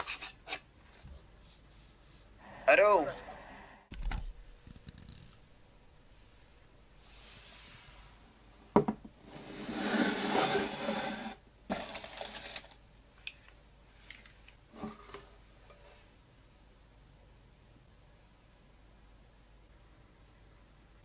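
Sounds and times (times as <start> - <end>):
wooden lid sliding scrape: 9.2 - 11.4.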